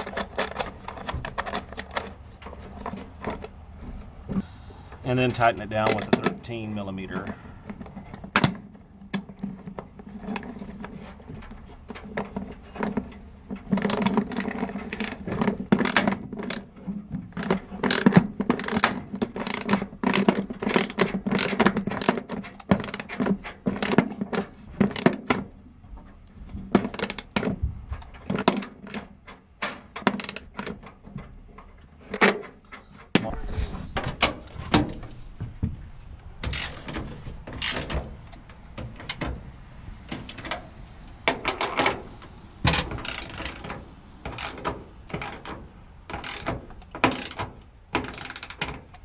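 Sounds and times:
ratchet wrench clicking: 44.3s - 45.4s, 46.1s - 47.4s.

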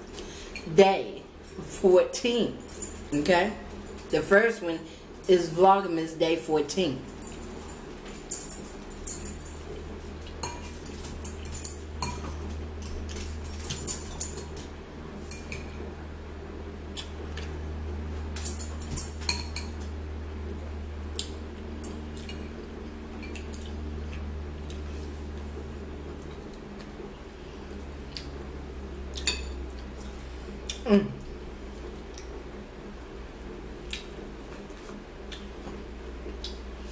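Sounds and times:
low hum: 0.0s - 36.9s
cutlery clinking on ceramic bowls: 18.4s - 19.8s.

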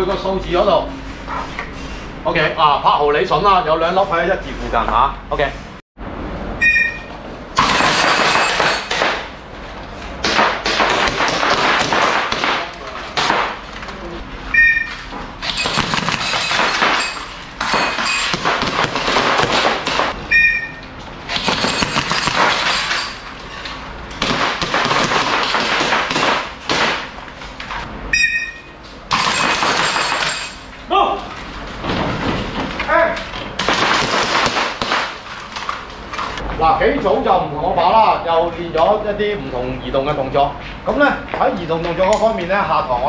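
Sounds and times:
short electronic beep: 6.6s - 7.2s, 14.5s - 15.0s, 20.3s - 20.9s, 28.1s - 28.8s
airsoft pistols firing: 24.2s - 27.1s, 33.6s - 35.2s.

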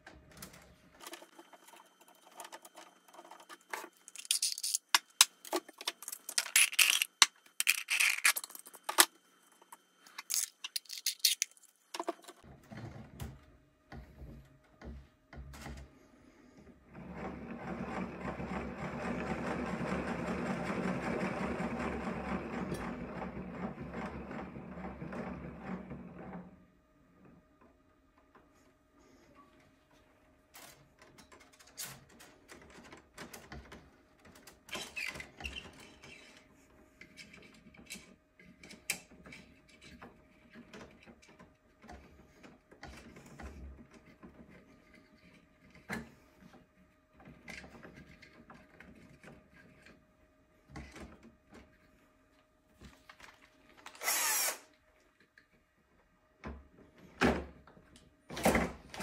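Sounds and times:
plastic spools clicking and scraping: 0.0s - 13.3s, 30.5s - 50.1s, 53.2s - 54.7s.

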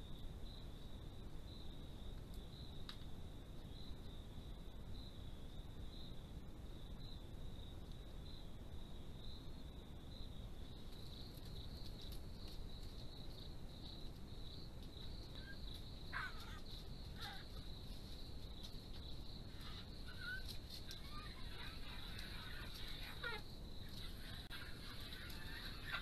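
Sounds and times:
night insects trilling: 0.0s - 26.0s
falling animal calls: 15.4s - 17.6s, 19.6s - 26.0s.

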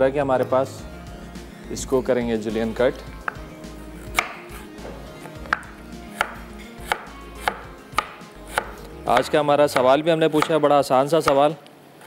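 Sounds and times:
knife knocking on wooden board: 3.2s - 3.5s, 4.2s - 9.3s.

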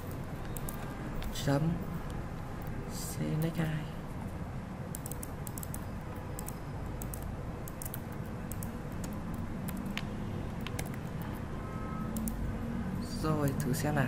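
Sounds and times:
steady low hum: 0.0s - 14.0s
keyboard key clicks: 4.9s - 11.2s.

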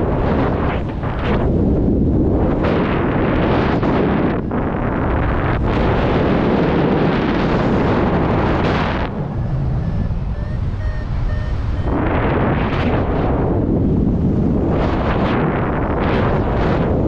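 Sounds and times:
wind buffeting microphone: 0.0s - 17.0s
short beeps: 9.3s - 12.0s.

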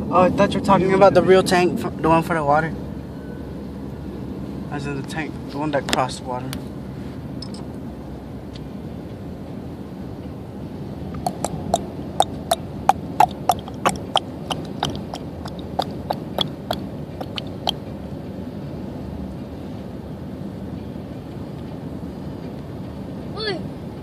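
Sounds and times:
car road noise: 0.0s - 24.0s
small bits ticking on car: 11.2s - 17.8s.

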